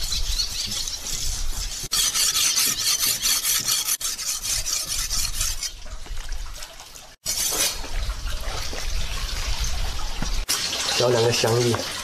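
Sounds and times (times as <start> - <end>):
cleaver rasping on whetstone: 0.0 - 5.7.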